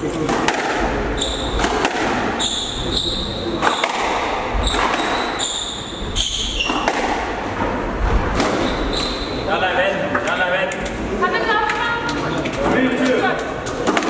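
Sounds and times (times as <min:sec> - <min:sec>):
squash ball knocks: 0:00.2 - 0:02.4, 0:03.6 - 0:05.4, 0:06.6 - 0:07.4, 0:08.1 - 0:08.7
shoes squeaking on wooden floor: 0:01.0 - 0:09.6.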